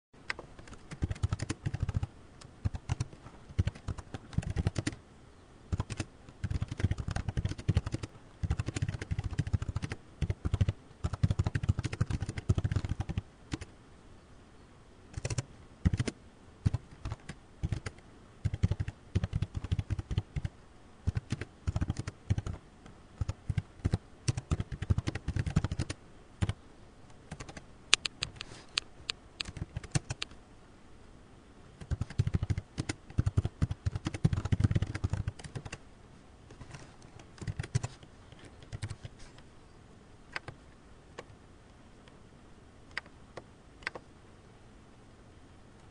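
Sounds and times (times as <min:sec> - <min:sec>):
typing on computer keyboard: 0:00.6 - 0:05.0, 0:05.7 - 0:13.7, 0:15.1 - 0:20.5, 0:21.1 - 0:22.6, 0:23.2 - 0:26.6, 0:27.3 - 0:28.4, 0:29.4 - 0:30.3, 0:31.8 - 0:35.8, 0:37.4 - 0:38.0, 0:38.6 - 0:39.1.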